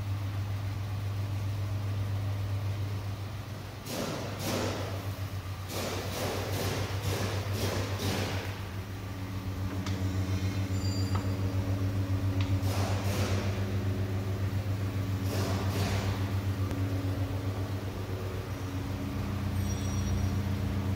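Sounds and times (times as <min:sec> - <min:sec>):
low machine hum: 0:00.0 - 0:20.9.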